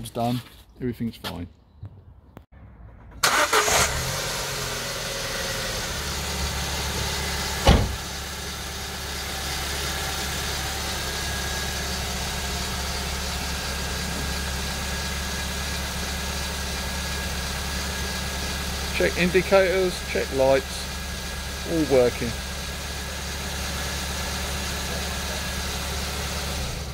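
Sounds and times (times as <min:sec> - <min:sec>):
car engine starting and idling: 0:02.6 - 0:26.9
loud thump: 0:07.6 - 0:08.1.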